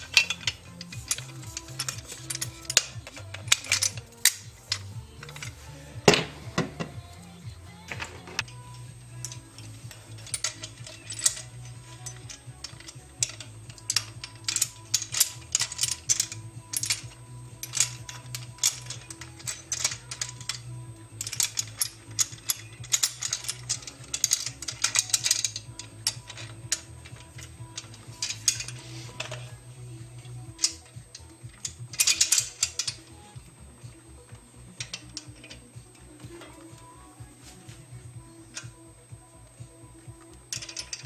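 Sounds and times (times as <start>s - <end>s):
bicycle clamp clicking and ratcheting: 0.0s - 41.0s
quiet background music: 0.0s - 41.0s.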